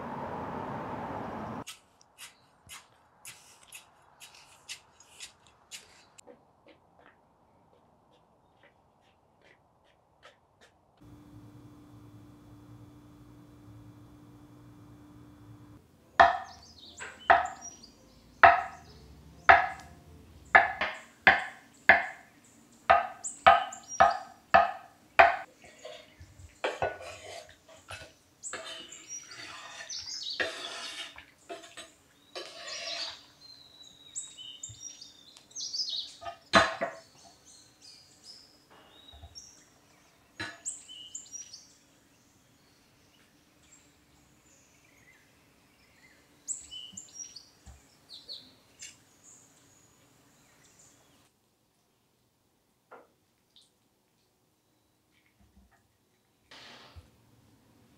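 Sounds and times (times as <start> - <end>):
birds chirping: 11.1 - 24.4
scraping into glass bowl: 28.6 - 31.8, 32.4 - 33.3.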